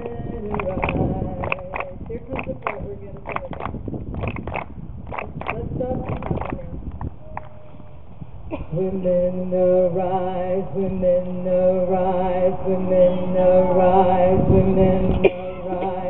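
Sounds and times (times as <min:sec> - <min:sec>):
voices singing a held note: 0:09.4 - 0:16.0.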